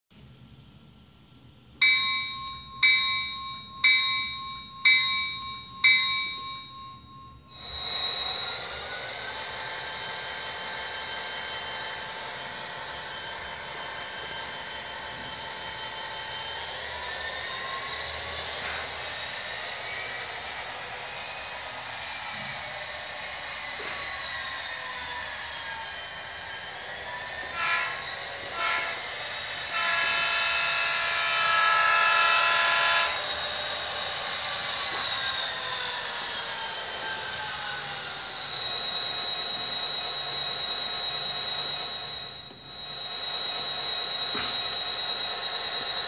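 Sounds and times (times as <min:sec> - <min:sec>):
model locomotive engine sound: 0:00.5 - 0:46.0
bell-like dings: 0:01.8 - 0:07.6.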